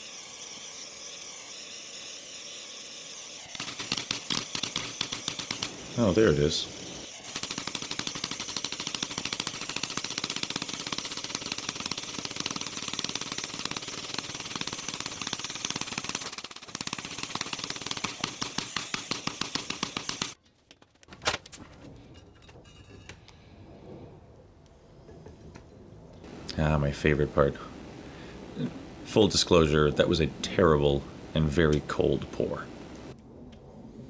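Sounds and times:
gas torch flame popping: 0:03.5 - 0:20.4
sharp click: 0:03.6 - 0:05.7.

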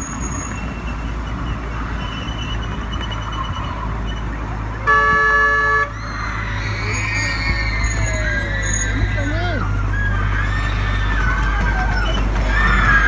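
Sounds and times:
miniature train rumbling: 0:00.0 - 0:13.0
train horn blast: 0:04.8 - 0:05.9.

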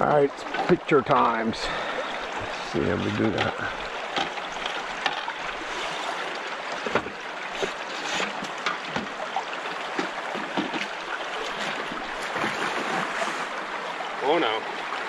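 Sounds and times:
river current running: 0:00.0 - 0:15.0.

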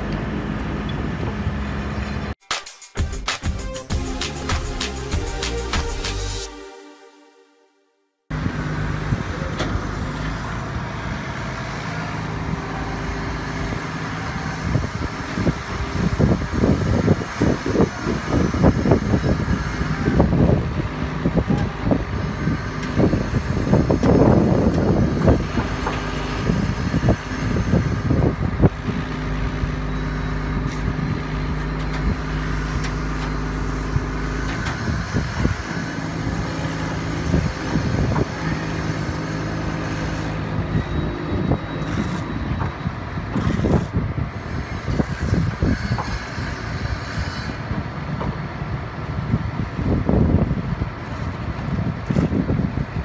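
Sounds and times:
truck engine humming: 0:03.0 - 0:07.0.

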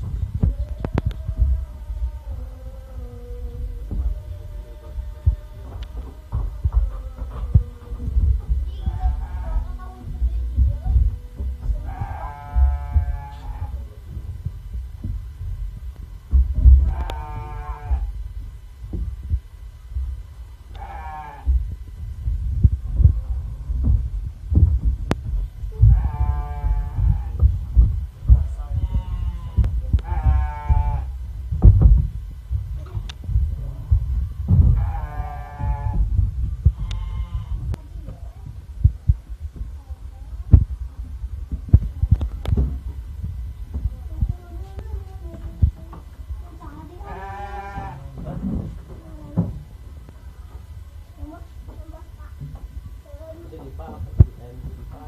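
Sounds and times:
low thumps and rumble: 0:00.0 - 0:55.0
sheep bleating: 0:11.8 - 0:13.8, 0:16.8 - 0:18.1, 0:20.7 - 0:21.5, 0:25.8 - 0:27.4, 0:28.8 - 0:31.1, 0:34.7 - 0:36.1, 0:36.8 - 0:37.7, 0:47.0 - 0:48.2.

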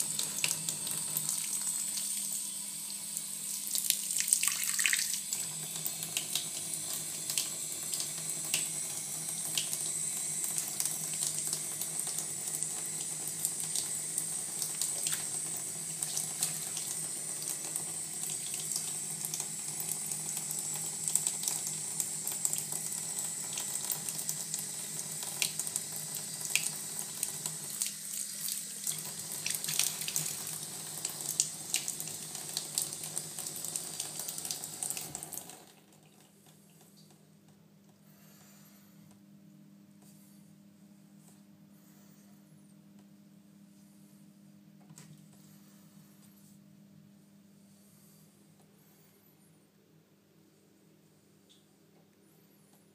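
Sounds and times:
water running into a bath: 0:00.0 - 0:37.1.

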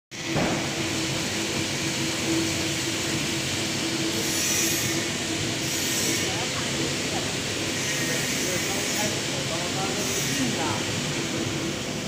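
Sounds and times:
machine whirring and hissing: 0:00.1 - 0:12.0.

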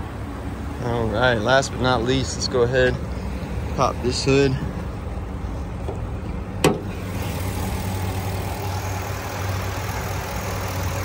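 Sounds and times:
truck engine idling: 0:00.0 - 0:11.0
hood opening clunk: 0:05.8 - 0:07.1.

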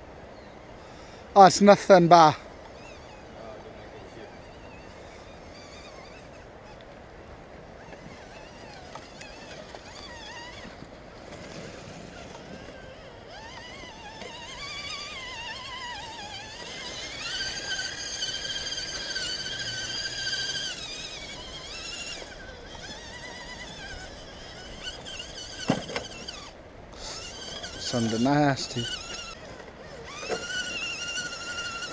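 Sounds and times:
electric motors whining: 0:00.0 - 0:31.9
toy truck tipping knock: 0:25.6 - 0:26.4.

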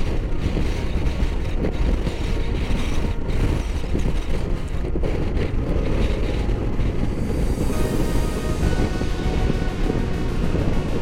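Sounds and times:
motorcycle engine running: 0:00.0 - 0:11.0
tyres on gravel road: 0:00.0 - 0:11.0
wind buffeting microphone: 0:00.0 - 0:11.0.

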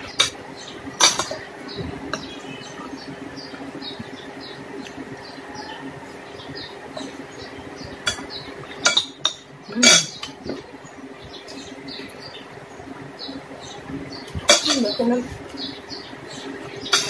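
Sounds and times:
cutlery clinking against a plate: 0:00.0 - 0:00.4, 0:01.0 - 0:01.5, 0:08.0 - 0:10.6, 0:14.3 - 0:15.0
steady low hum: 0:00.0 - 0:17.0.

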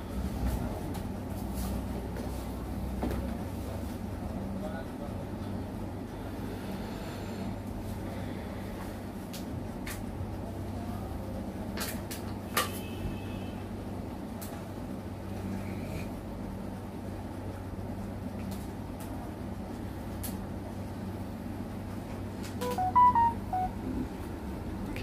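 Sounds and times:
smartphone electronic beeps: 0:22.6 - 0:24.0.

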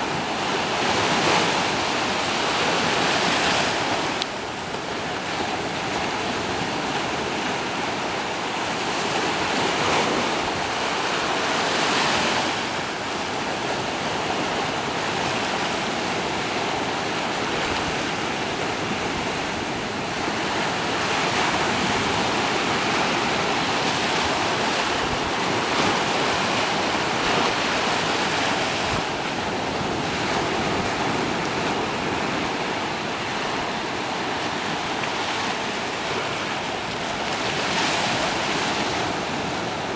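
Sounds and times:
waves washing over sand and rocks: 0:00.0 - 0:39.9.

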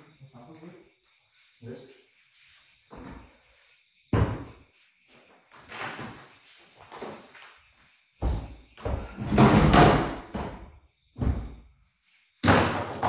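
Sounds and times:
heavy thuds and bumps: 0:04.1 - 0:04.6, 0:08.2 - 0:11.7.

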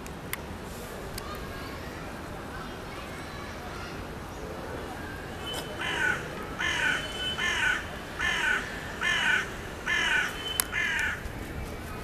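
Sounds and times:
crow cawing: 0:05.8 - 0:11.2.

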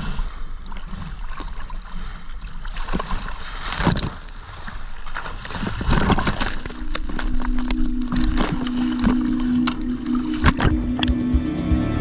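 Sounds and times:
fish thrashing and splashing: 0:00.0 - 0:11.4
choppy sea water sloshing: 0:00.0 - 0:11.5
music: 0:07.8 - 0:12.0.

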